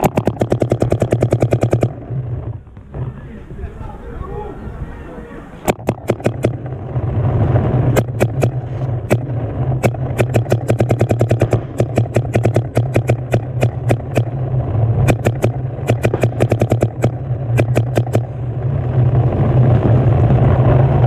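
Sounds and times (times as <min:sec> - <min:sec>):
paintball markers firing: 0:00.0 - 0:02.0, 0:05.6 - 0:06.8, 0:07.9 - 0:14.4, 0:15.0 - 0:18.4
steady low hum: 0:00.0 - 0:21.0.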